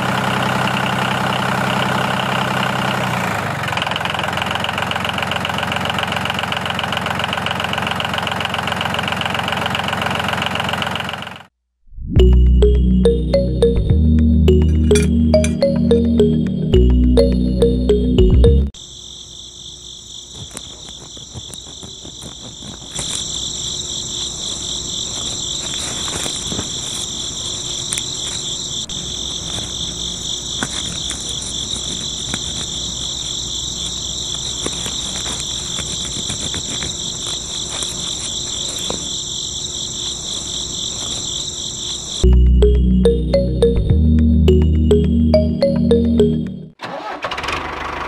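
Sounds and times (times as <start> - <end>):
crickets chirping: 18.8 - 43.6.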